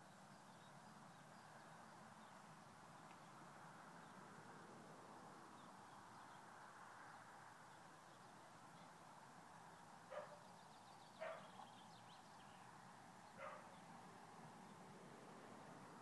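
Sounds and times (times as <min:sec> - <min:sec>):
dog barking faintly: 0:10.1 - 0:10.4, 0:11.2 - 0:11.6, 0:13.4 - 0:13.8.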